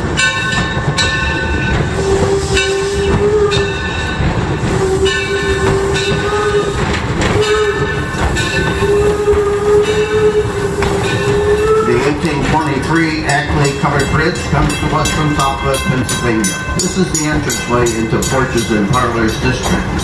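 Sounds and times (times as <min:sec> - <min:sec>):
moving train running noise: 0:00.0 - 0:20.0
steam locomotive whistle: 0:01.8 - 0:12.4.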